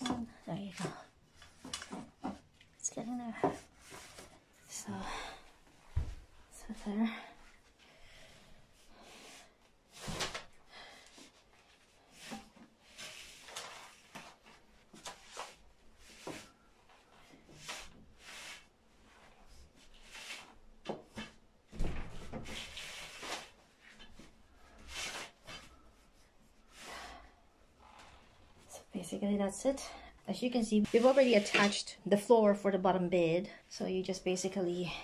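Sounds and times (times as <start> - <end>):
fabric mesh rubbing and rustling: 11.5 - 26.8, 30.6 - 31.9.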